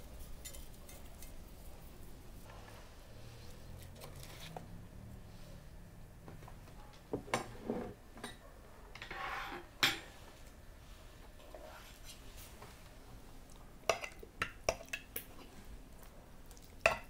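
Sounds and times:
cutlery clinking against dishes: 13.9 - 15.1.

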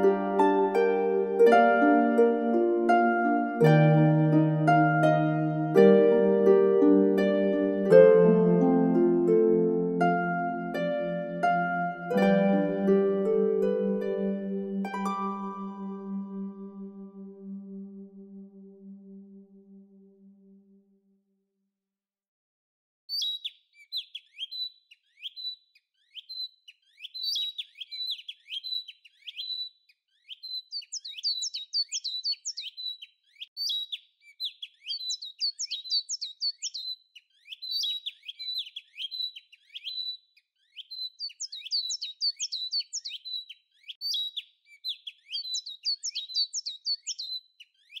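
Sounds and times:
small birds chirping: 23.1 - 48.0.

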